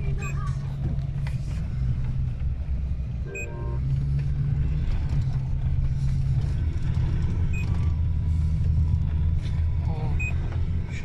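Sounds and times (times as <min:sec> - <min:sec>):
engine and road drone: 0:00.0 - 0:11.0
short electronic beep: 0:03.3 - 0:03.8.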